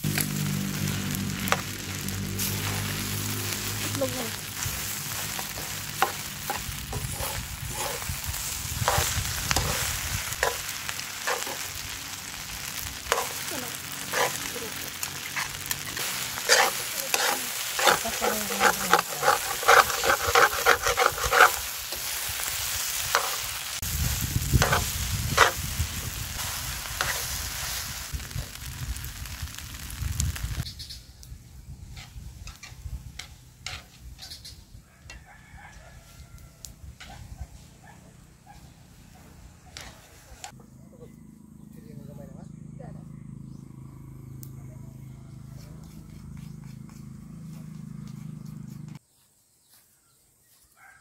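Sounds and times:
rice sizzling in a wok: 0.0 - 37.8
metal utensil scraping a pan: 4.8 - 11.8, 13.1 - 14.6, 15.2 - 23.6, 24.6 - 25.6, 31.9 - 34.5.

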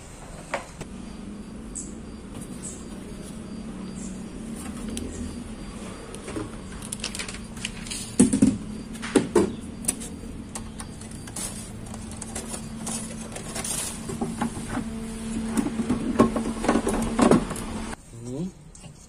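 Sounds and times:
plastic panels knocking and clattering: 6.2 - 14.9.

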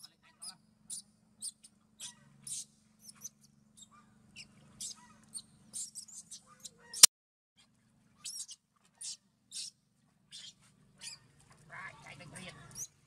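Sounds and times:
baby monkey squealing: 0.0 - 7.1, 8.2 - 9.7, 10.3 - 11.2, 12.7 - 13.0.

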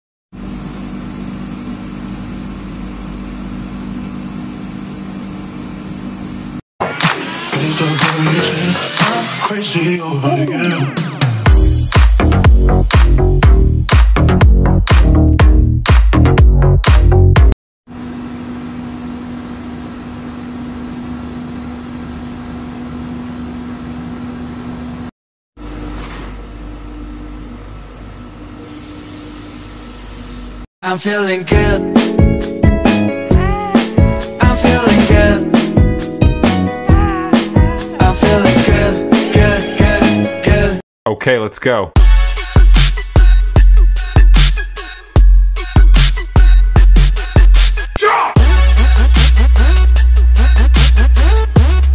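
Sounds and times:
short high squeak: 25.9 - 26.6.

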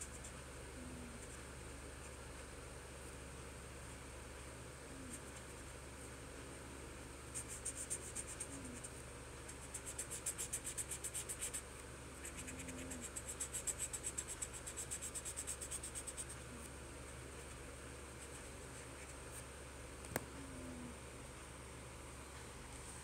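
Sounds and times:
felt-tip marker scratching on paper: 7.3 - 11.6, 12.2 - 16.4, 18.1 - 19.4.

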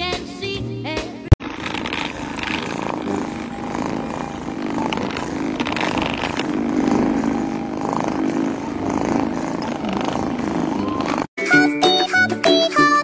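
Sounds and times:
massage gun motor hum: 1.4 - 11.4.

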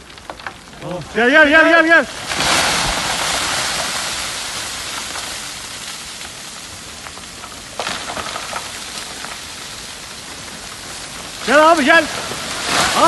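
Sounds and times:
rushing hiss of falling earth: 0.0 - 13.0.

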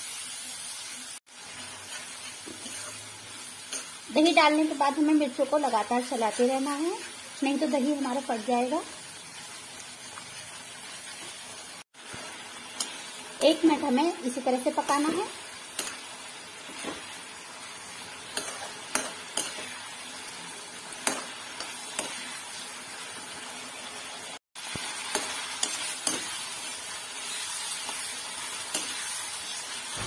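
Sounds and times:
chillies sizzling in oil: 0.0 - 30.0
spatula scraping pan: 1.8 - 3.1.

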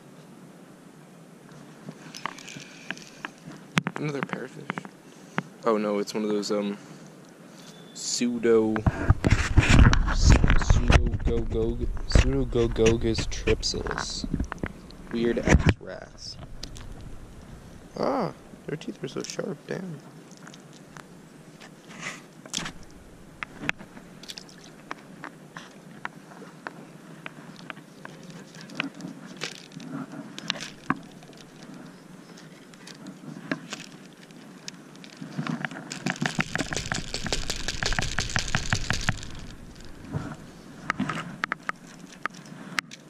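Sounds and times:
fishing rod clicks and knocks: 16.4 - 17.2, 27.6 - 31.8, 32.7 - 43.0
fishing reel rapid clicking: 36.0 - 39.9.

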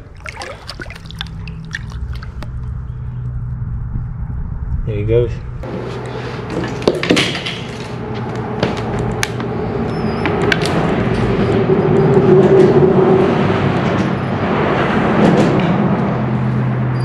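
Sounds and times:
steady low hum: 0.0 - 6.5
traffic rumbling on bridge: 0.8 - 17.0.

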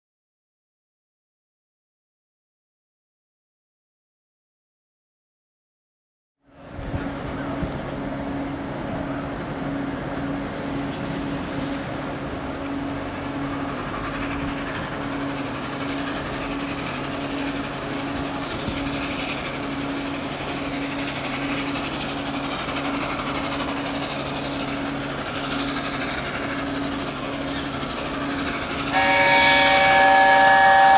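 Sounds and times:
steam locomotive exhaust and hiss: 6.5 - 30.9.

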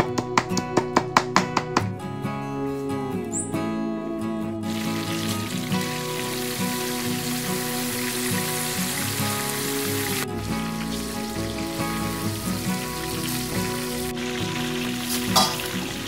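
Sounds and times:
background music: 0.0 - 16.0
hot oil sizzling in a wok: 4.7 - 16.0.

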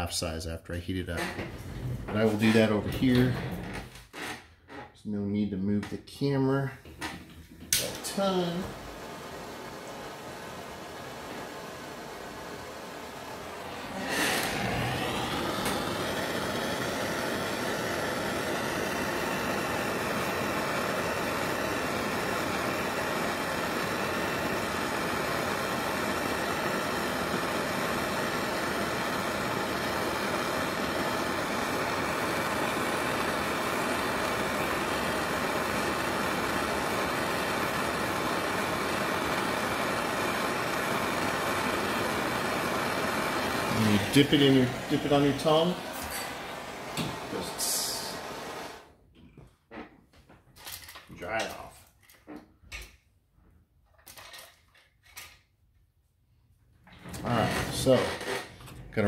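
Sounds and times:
gas torch flame hissing: 1.3 - 3.9, 6.9 - 49.0, 57.0 - 59.0.

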